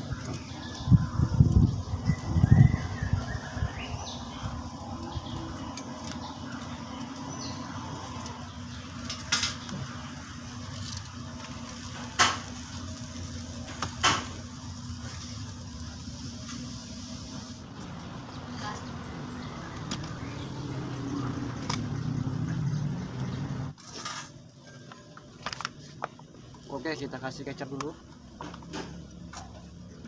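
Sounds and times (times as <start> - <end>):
fan gusts buffeting microphone: 0.0 - 23.8.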